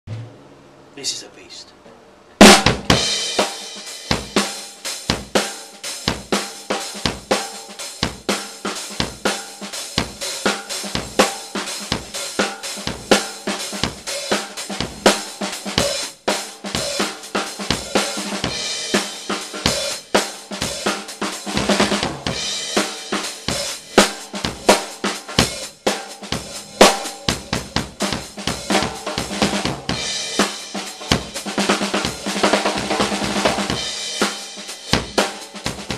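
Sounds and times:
snare drum strikes: 0:00.1 - 0:00.4, 0:02.4 - 0:03.0.

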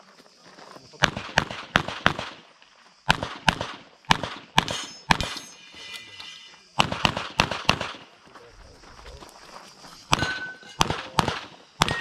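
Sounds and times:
pistol shots: 0:01.0 - 0:02.5, 0:03.1 - 0:05.4, 0:06.8 - 0:08.1, 0:10.1 - 0:12.0
metallic ringing: 0:04.7 - 0:06.6, 0:09.9 - 0:11.0.

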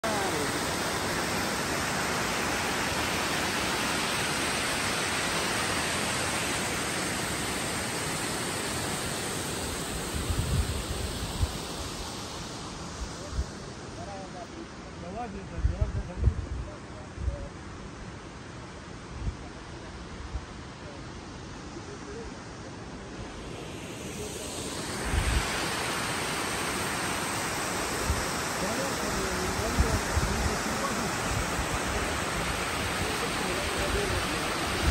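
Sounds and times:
waterfall rushing over rock: 0:00.0 - 0:15.2, 0:22.4 - 0:34.9.

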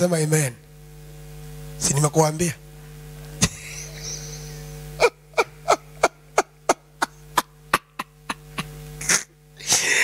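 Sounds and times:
steady low hum: 0:00.0 - 0:10.0
man laughing heartily: 0:03.4 - 0:10.0.

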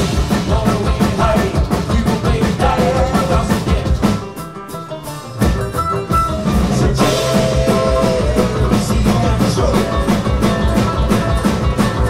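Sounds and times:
person singing: 0:00.0 - 0:04.2, 0:06.7 - 0:12.0
banjo: 0:00.0 - 0:12.0
drum kit rock beat: 0:00.0 - 0:12.0
strummed acoustic guitar: 0:00.0 - 0:12.0
upright bass: 0:00.0 - 0:12.0.

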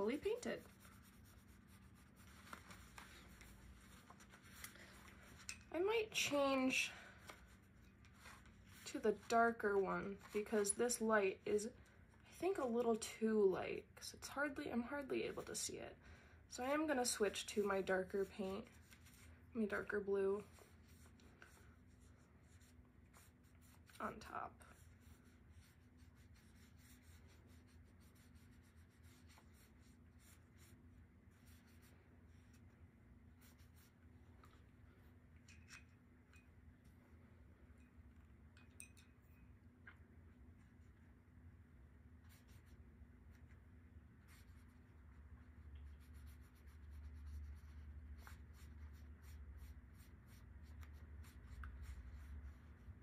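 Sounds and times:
paintbrush strokes on paper: 0:00.0 - 0:06.6, 0:07.2 - 0:11.4, 0:16.6 - 0:35.2, 0:42.2 - 0:53.0
low room hum: 0:00.0 - 0:53.0.

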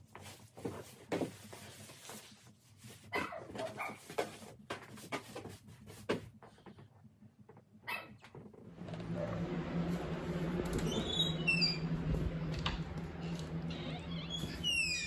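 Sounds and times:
dog barking and whining: 0:03.1 - 0:04.0, 0:07.9 - 0:08.2.

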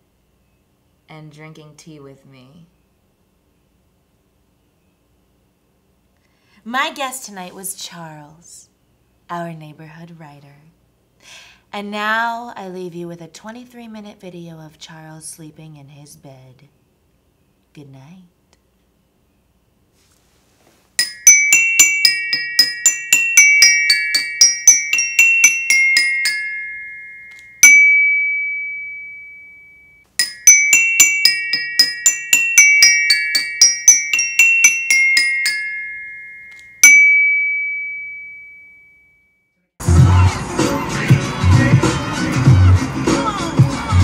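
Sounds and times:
bell-like mallet percussion melody: 0:21.0 - 0:39.0.

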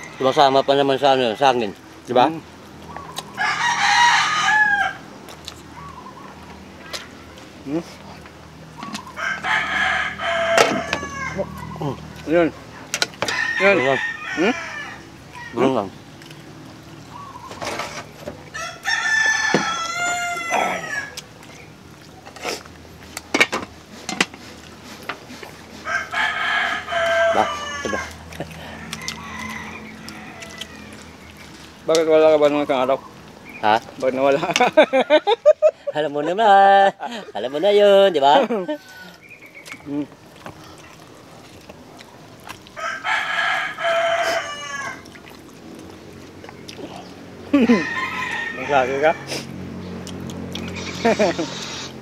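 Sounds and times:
rooster crowing: 0:00.0 - 0:01.2, 0:03.3 - 0:05.1, 0:09.0 - 0:11.8, 0:13.2 - 0:15.7, 0:18.5 - 0:21.2, 0:25.8 - 0:31.2, 0:37.1 - 0:39.5, 0:42.8 - 0:45.1, 0:47.5 - 0:49.5.

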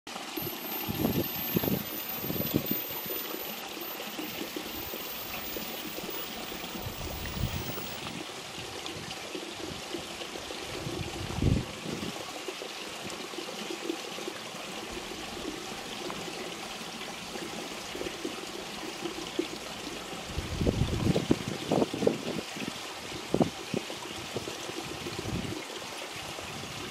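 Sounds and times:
water flowing: 0:00.1 - 0:08.5.

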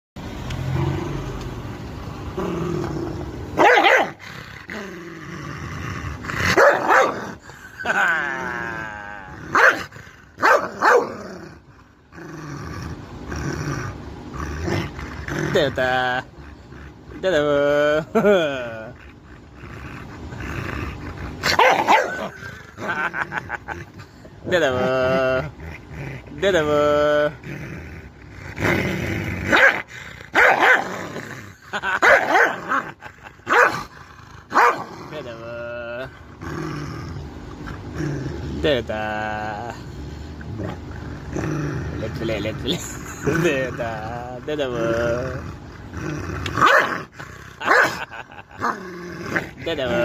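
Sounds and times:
dog growling: 0:00.6 - 0:01.5, 0:02.1 - 0:50.0
dog barking: 0:03.6 - 0:04.2, 0:06.6 - 0:07.2, 0:09.6 - 0:09.8, 0:10.4 - 0:11.1, 0:21.5 - 0:22.2, 0:29.5 - 0:29.8, 0:30.4 - 0:30.8, 0:33.5 - 0:33.8, 0:34.5 - 0:34.9, 0:46.6 - 0:46.9.

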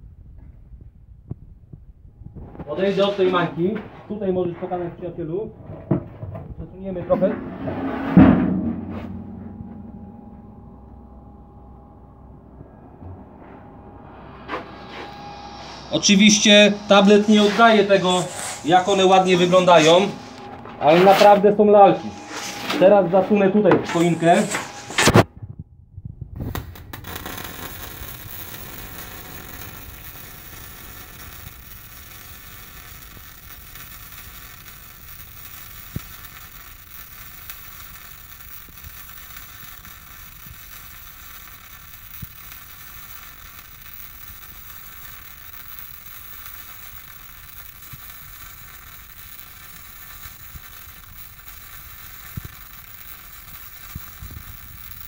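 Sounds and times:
welding arc hissing: 0:14.2 - 0:25.2, 0:26.4 - 0:55.0
sharp welding pops: 0:14.2 - 0:25.3, 0:26.4 - 0:55.0.

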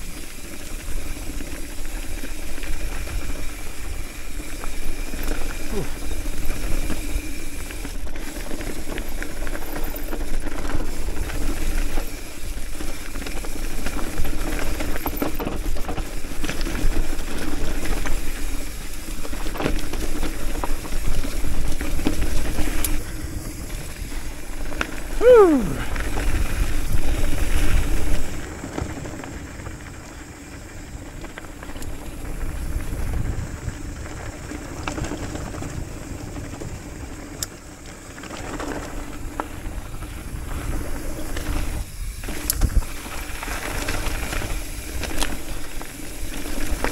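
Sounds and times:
bike rattling and knocking: 0:00.0 - 0:25.2, 0:25.8 - 0:46.9
tyres rumbling over gravel: 0:00.0 - 0:46.9
wind on microphone: 0:32.2 - 0:34.6.

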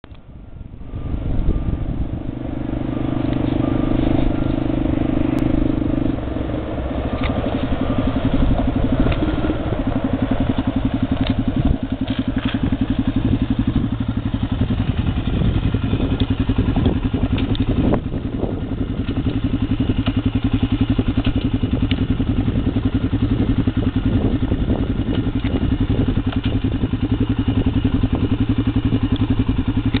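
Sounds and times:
engine running steadily: 0:00.0 - 0:30.0
sharp clicks and rattles: 0:07.1 - 0:09.3, 0:10.4 - 0:18.3, 0:18.9 - 0:22.2, 0:25.0 - 0:30.0.

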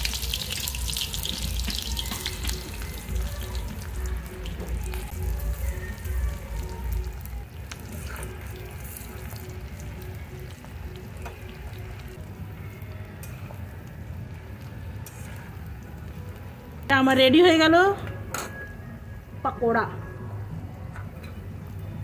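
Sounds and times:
fritters deep-frying in oil: 0:00.0 - 0:17.2.

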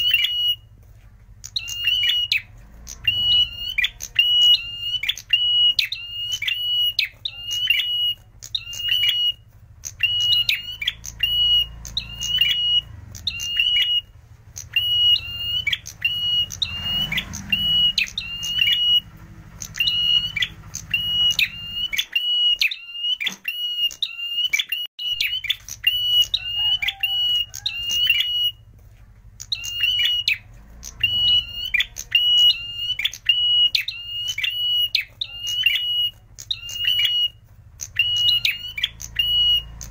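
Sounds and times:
bird high chip notes: 0:00.0 - 0:28.7.

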